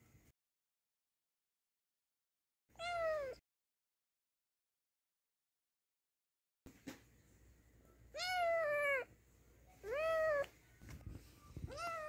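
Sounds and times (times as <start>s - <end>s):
kitten meowing: 2.8s - 3.4s, 8.2s - 9.1s, 9.8s - 10.5s, 11.6s - 12.0s.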